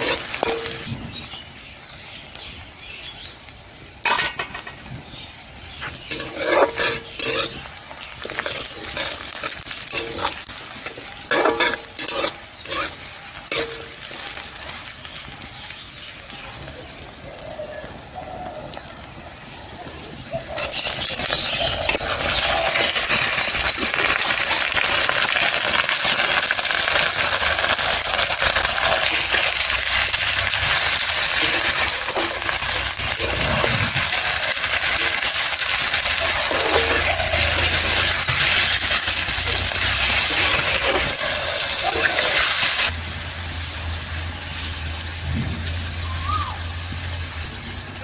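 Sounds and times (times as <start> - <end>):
metal spatula scraping a pan: 0.0 - 1.0, 5.9 - 14.4, 20.6 - 25.2, 27.0 - 42.9
meat sizzling in hot oil: 0.0 - 48.0.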